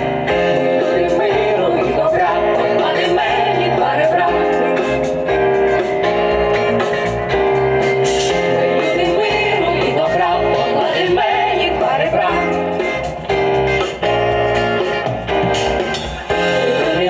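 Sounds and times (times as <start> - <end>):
person singing: 16.4 - 17.0.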